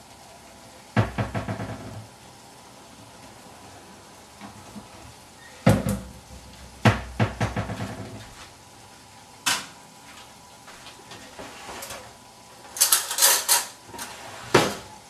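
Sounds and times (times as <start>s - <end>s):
hard objects knocking in kitchen: 1.0s - 2.1s, 6.8s - 8.2s.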